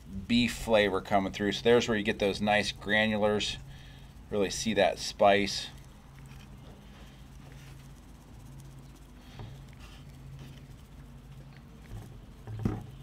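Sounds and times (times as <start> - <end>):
low steady hum: 0.0 - 13.0
seasoning pattering onto meat: 0.0 - 13.0.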